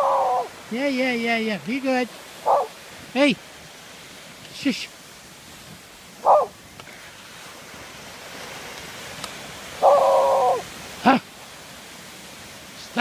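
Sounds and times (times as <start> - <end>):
waves breaking on shore: 0.0 - 13.0
dog barking: 2.4 - 2.7, 6.2 - 6.5, 9.8 - 10.6.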